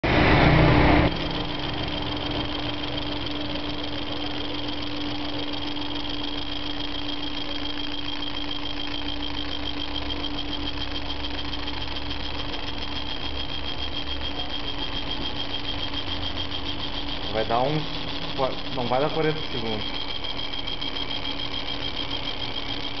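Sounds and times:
loud burst of noise: 0.0s - 3.0s
laser engraver humming and whining: 0.0s - 23.0s.

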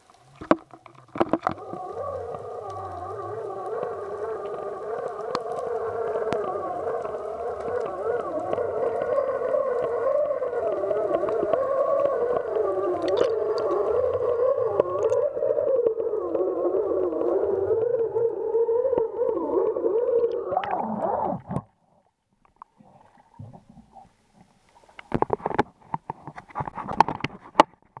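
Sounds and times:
wavering underwater hum: 0.0s - 25.4s.

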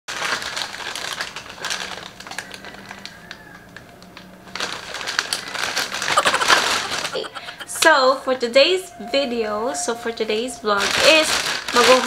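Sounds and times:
plastic bag crinkling: 0.1s - 7.5s, 10.8s - 12.0s.

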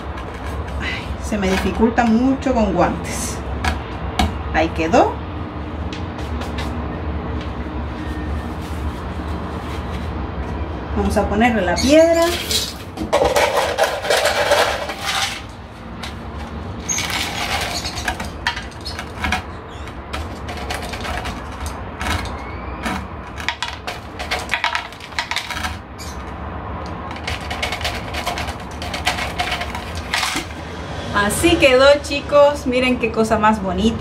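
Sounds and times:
small stones clattering: 12.2s - 26.3s, 27.0s - 30.6s.

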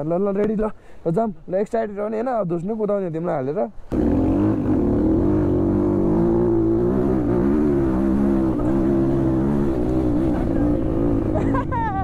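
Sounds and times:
dirt bike engine revving: 3.9s - 11.7s.

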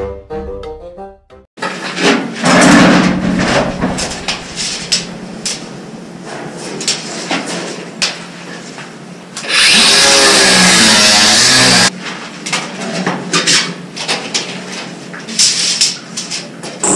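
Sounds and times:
scraping and knocking on pipe: 1.7s - 7.7s
power tool running: 9.4s - 11.9s.

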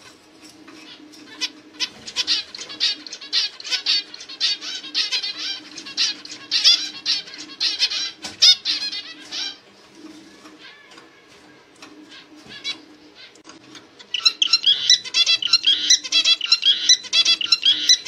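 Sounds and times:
finch chirping: 0.8s - 9.6s, 14.0s - 18.0s.

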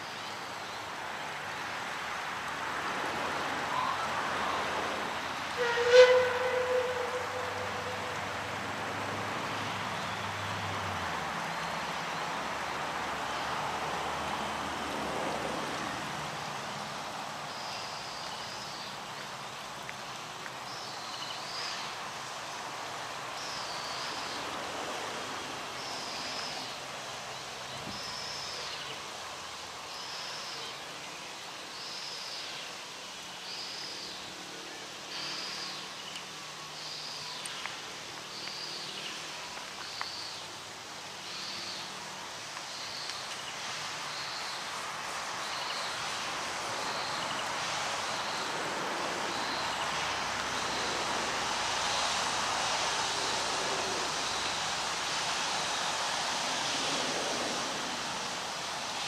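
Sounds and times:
steam locomotive passing rumble: 3.7s - 9.4s.

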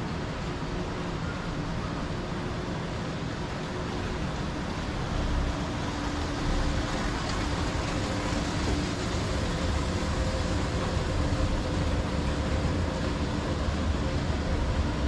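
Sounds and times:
faint steady hums: 0.0s - 15.0s
monorail rumble and hiss: 0.0s - 15.0s.

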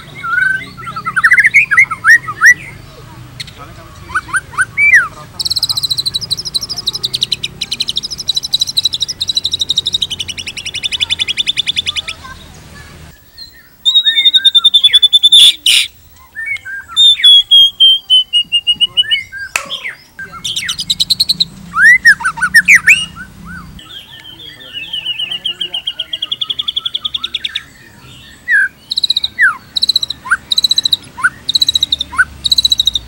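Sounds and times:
whistled bird notes: 0.0s - 12.4s, 13.1s - 33.0s
bird singing: 0.0s - 33.0s
sharp bird clicks: 5.4s - 12.2s, 19.4s - 23.1s, 28.8s - 33.0s.

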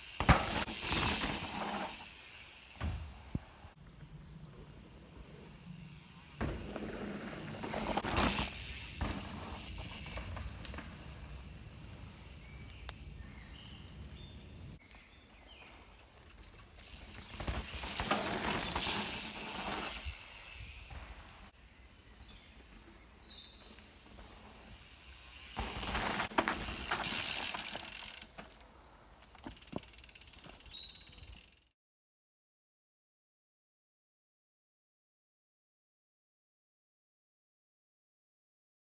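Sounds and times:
bicycle freehub ticking: 0.0s - 2.9s, 5.5s - 6.7s, 8.2s - 13.2s, 24.6s - 28.3s, 29.4s - 31.7s
bike tyres rolling on dirt: 0.0s - 31.6s
birds chirping: 11.8s - 19.8s.

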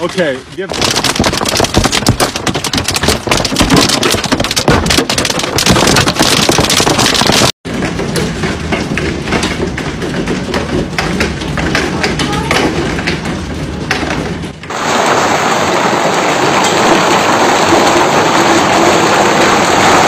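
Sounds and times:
hail drumming on roller shutters: 0.6s - 20.0s
hail clattering on a car: 0.7s - 20.0s.

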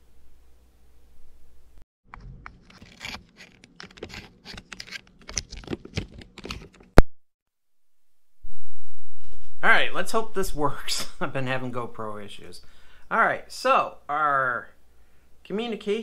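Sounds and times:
camera handling scrapes and rustles: 2.2s - 7.0s.

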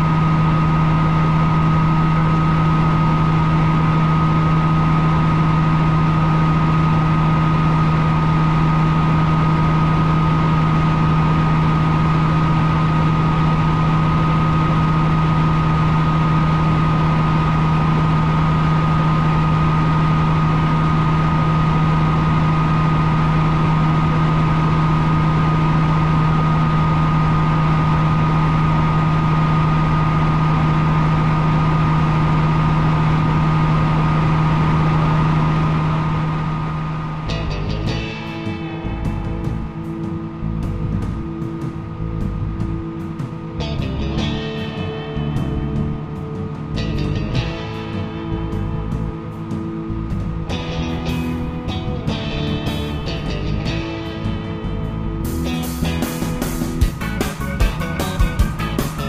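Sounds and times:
helicopter engine and rotor drone: 0.0s - 59.0s.

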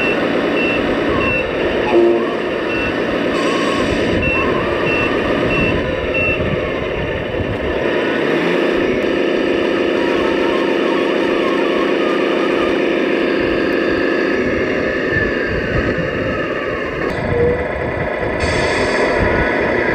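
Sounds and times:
reversing beeper chirping: 0.0s - 6.5s, 9.9s - 13.6s
simulated diesel engine idling: 0.0s - 7.8s, 8.8s - 19.3s.

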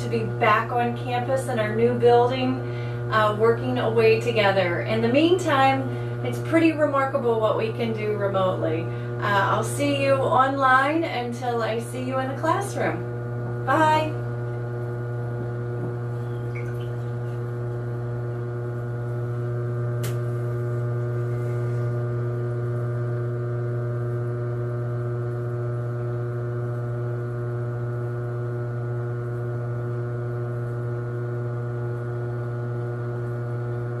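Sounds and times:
potter's wheel motor hum: 0.0s - 34.0s
short click: 20.0s - 20.2s.

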